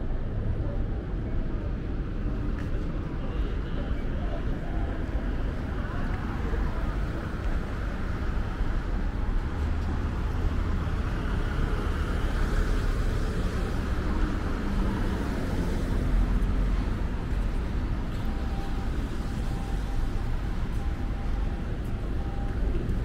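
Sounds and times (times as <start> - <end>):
cars passing on busy street: 0.0 - 23.0.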